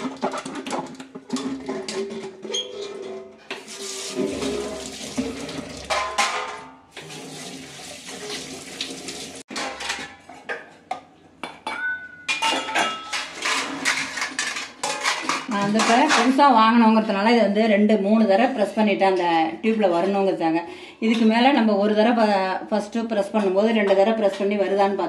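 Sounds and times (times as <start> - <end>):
tap water rushing over plate: 3.6 - 6.0, 7.0 - 9.4
metal plates clattering: 4.4 - 6.8, 9.5 - 10.5, 11.8 - 16.4.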